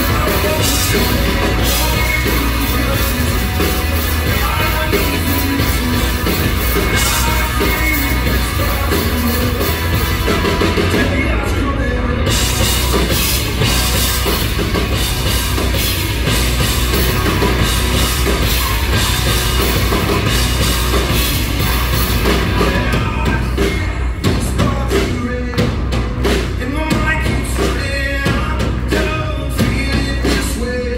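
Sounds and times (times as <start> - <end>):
bass guitar: 0.0 - 30.9
drum kit: 0.0 - 30.9
live rock band playing: 0.0 - 30.9.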